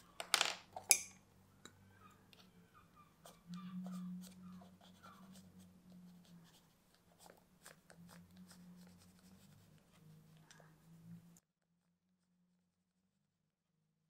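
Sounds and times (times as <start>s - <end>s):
pencil scratching on paper: 3.2s - 10.4s.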